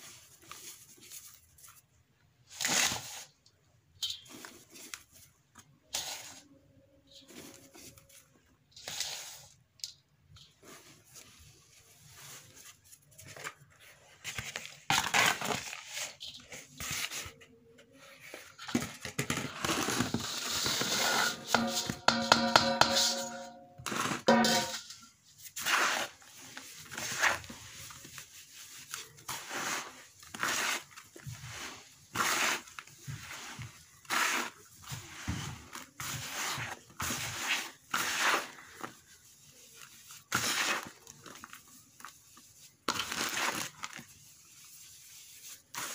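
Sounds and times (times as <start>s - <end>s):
hands crunching dry cement mix: 25.5s - 45.9s.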